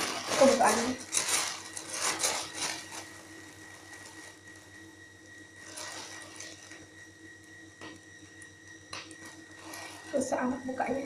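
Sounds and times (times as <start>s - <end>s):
packaging rustling and crinkling: 0.0s - 4.8s, 5.5s - 7.0s, 9.0s - 10.3s.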